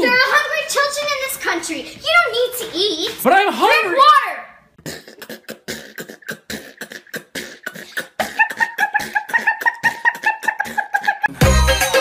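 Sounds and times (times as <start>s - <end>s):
beatboxing clicks and thumps: 4.8s - 11.4s.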